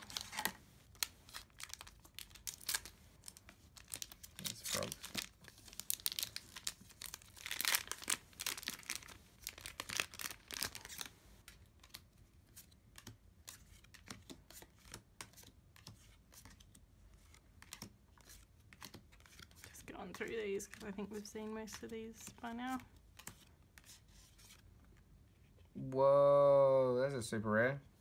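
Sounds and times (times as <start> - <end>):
foil packs crinkling and tearing: 0.0 - 11.1.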